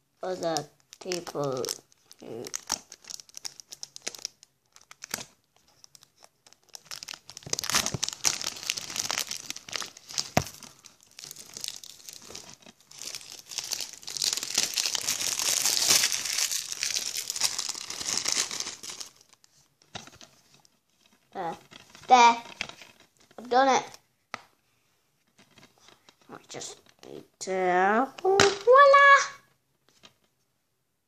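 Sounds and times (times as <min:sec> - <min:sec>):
plastic shrink-wrap crinkling: 0:00.2 - 0:23.5.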